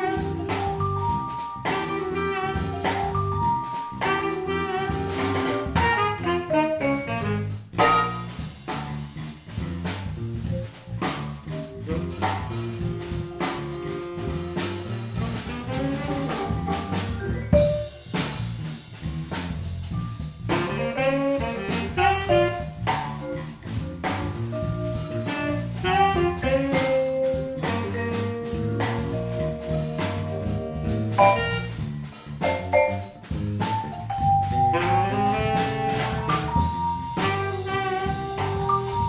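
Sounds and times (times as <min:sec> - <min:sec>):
tenor saxophone: 0:00.0 - 0:08.5, 0:11.8 - 0:16.8, 0:20.4 - 0:23.0, 0:24.5 - 0:32.0, 0:34.6 - 0:39.0
vibraphone notes: 0:00.0 - 0:08.7, 0:16.4 - 0:18.4, 0:19.8 - 0:23.3, 0:24.5 - 0:39.0
bass and drum groove: 0:00.0 - 0:39.0.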